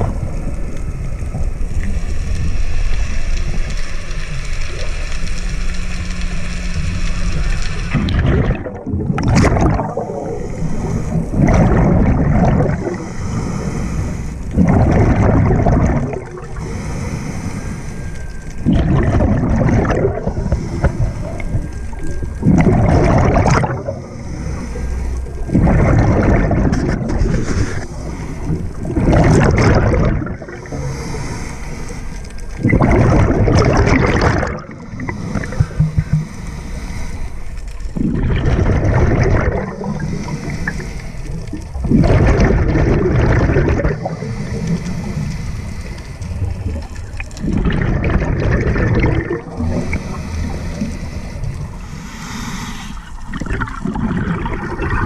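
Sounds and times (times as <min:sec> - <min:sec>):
exhaled bubbles bursting: 0:00.0 - 0:00.7, 0:07.9 - 0:13.1, 0:14.5 - 0:16.7, 0:18.5 - 0:24.2, 0:25.2 - 0:30.9, 0:32.5 - 0:36.4, 0:37.9 - 0:45.0, 0:46.3 - 0:50.9, 0:53.1 - 0:55.0
diver breathing through regulator: 0:09.8 - 0:38.2, 0:39.3 - 0:42.5, 0:43.4 - 0:47.0, 0:48.6 - 0:55.0.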